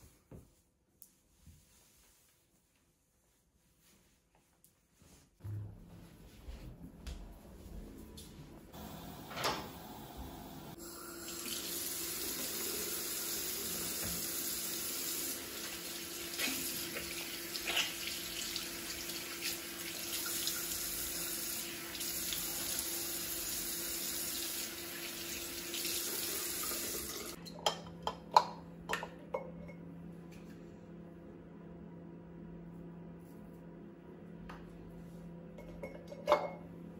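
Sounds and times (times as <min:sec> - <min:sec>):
sink tap running: 0:08.8 - 0:27.4.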